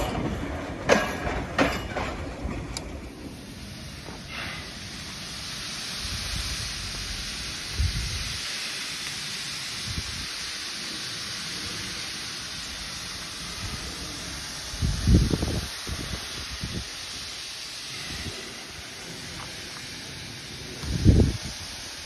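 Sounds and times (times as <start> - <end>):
distant steam locomotive hissing: 0.0 - 22.0
wind buffeting microphone: 6.0 - 8.4, 13.6 - 17.1, 20.6 - 22.0.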